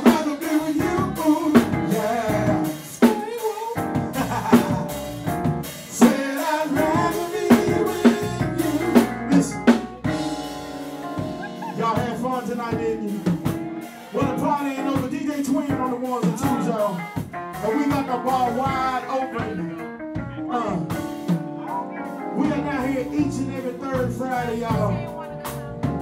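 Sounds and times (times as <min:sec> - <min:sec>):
man singing into microphone: 0:00.0 - 0:05.1, 0:05.9 - 0:10.3, 0:11.6 - 0:19.8, 0:20.4 - 0:25.2
electric guitar line: 0:00.0 - 0:15.0
drum kit beat: 0:00.0 - 0:26.0.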